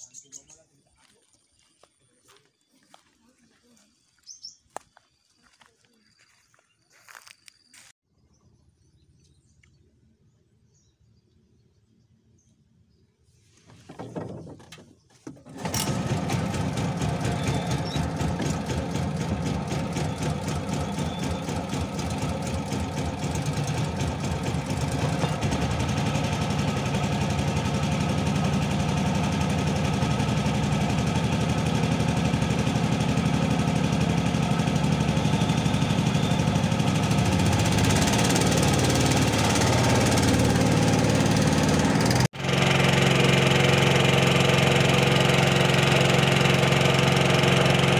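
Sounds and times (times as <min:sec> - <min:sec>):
boat engine running: 0:15.4 - 0:47.9.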